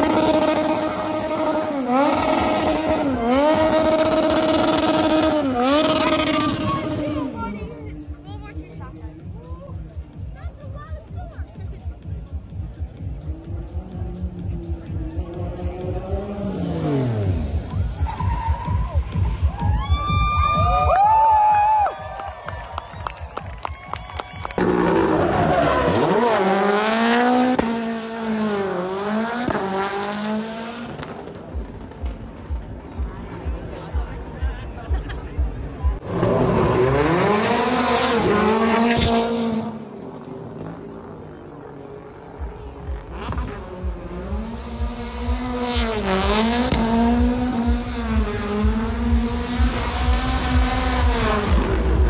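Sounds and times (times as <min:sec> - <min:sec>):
car engine at high revs: 0:00.0 - 0:09.2, 0:13.2 - 0:17.7, 0:24.6 - 0:52.0
tyres squealing on tarmac: 0:17.5 - 0:18.9.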